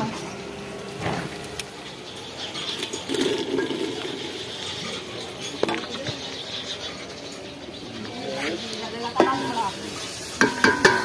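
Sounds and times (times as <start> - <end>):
potatoes sizzling in pot: 2.4 - 4.8, 8.3 - 11.0
metal pot clicks and knocks: 10.4 - 11.0.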